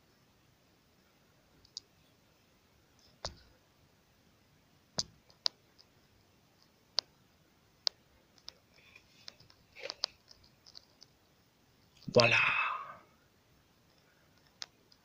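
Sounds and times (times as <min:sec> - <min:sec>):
faint steady hiss: 0:00.0 - 0:15.0
sharp clicks and taps: 0:05.0 - 0:05.9, 0:07.8 - 0:11.2.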